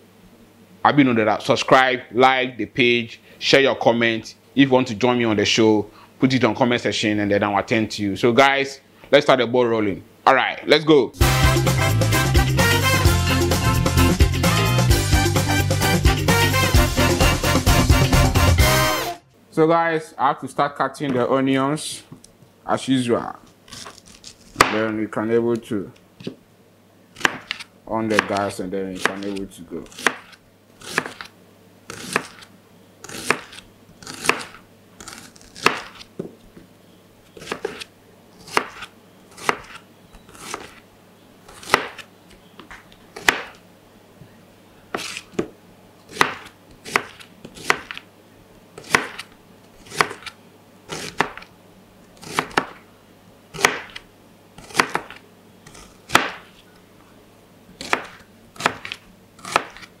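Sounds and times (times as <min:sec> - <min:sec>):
knife chopping on plastic board: 0:24.5 - 0:24.9, 0:27.2 - 0:31.3, 0:31.9 - 0:32.5, 0:33.1 - 0:36.3, 0:37.4 - 0:40.8, 0:41.5 - 0:43.6, 0:44.9 - 0:45.5, 0:46.1 - 0:48.0, 0:48.8 - 0:51.5, 0:52.2 - 0:52.8, 0:53.6 - 0:54.0, 0:54.6 - 0:56.6, 0:57.8 - 0:59.9.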